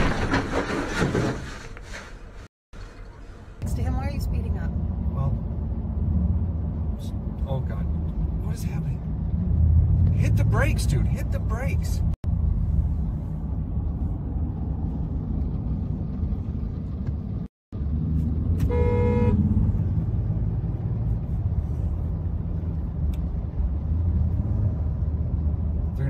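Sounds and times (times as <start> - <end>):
road and engine rumble inside car: 2.8 - 26.0
car horn honk: 18.6 - 19.6.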